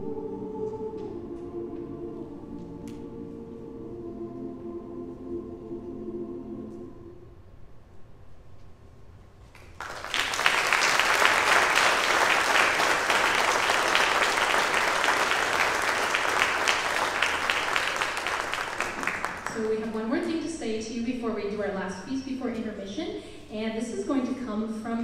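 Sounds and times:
choir holding chord: 0:00.0 - 0:07.5, 0:11.0 - 0:19.6
audience applause: 0:09.6 - 0:19.8.

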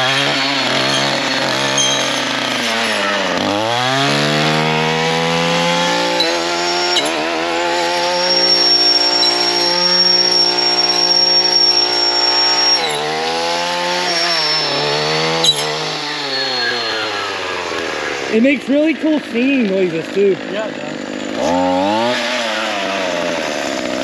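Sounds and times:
gas trimmer engine revving: 0:00.0 - 0:24.0
high singing blade note: 0:05.9 - 0:17.5.

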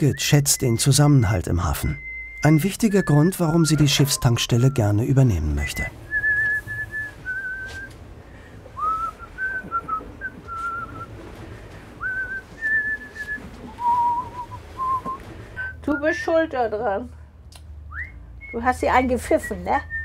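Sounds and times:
person whistling a tune: 0:00.0 - 0:07.9, 0:08.8 - 0:11.1, 0:12.0 - 0:16.2, 0:17.9 - 0:18.7.

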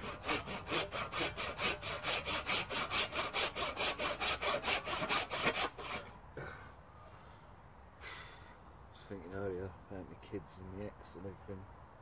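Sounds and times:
hand saw cutting a log: 0:00.0 - 0:06.1.

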